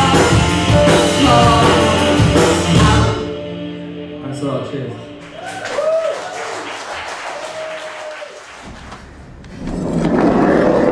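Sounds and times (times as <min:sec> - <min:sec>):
audience applauding and cheering: 0:05.2 - 0:09.2.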